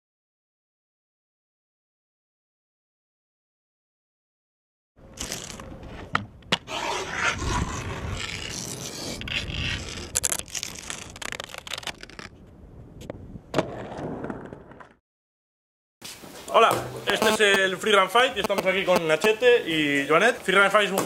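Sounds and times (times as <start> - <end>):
razor blade scraping grip tape: 5.1 - 5.7, 6.7 - 12.3
sharp clicks: 18.4 - 19.4.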